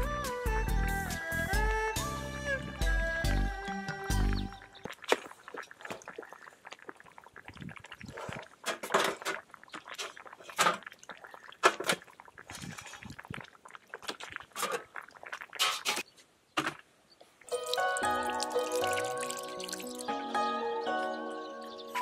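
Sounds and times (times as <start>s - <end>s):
broth dripping and splashing: 4.5s - 16.0s, 17.4s - 20.1s.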